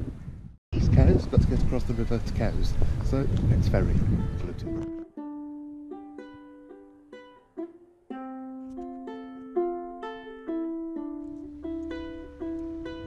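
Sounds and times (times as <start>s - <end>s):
solo ukulele melody: 4.1s - 13.0s.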